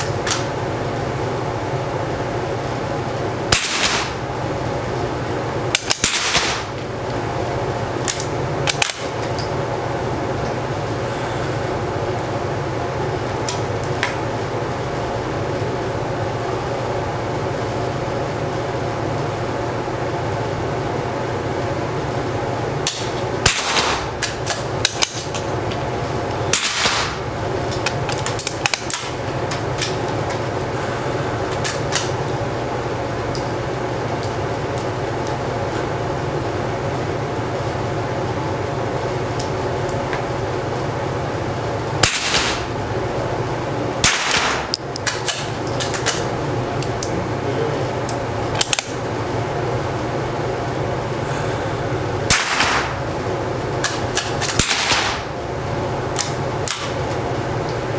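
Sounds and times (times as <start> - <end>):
rifle shots with echo: 3.5 - 4.2, 6.0 - 6.7, 23.4 - 24.1, 26.5 - 27.2, 42.0 - 42.7, 44.0 - 44.7, 52.3 - 52.9, 54.6 - 55.2.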